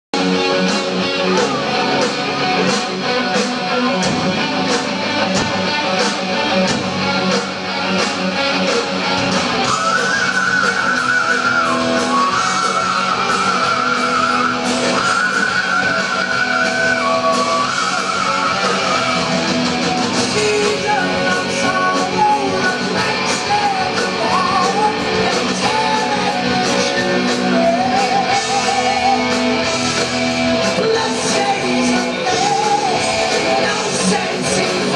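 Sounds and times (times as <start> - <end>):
heavy metal band playing live: 0.2 - 34.9
singer's vocals: 9.6 - 34.9.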